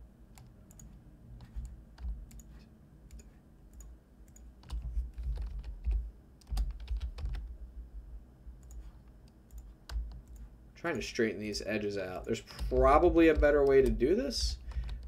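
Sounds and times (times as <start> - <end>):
keyboard keys clicking: 0.4 - 7.5, 12.3 - 14.0.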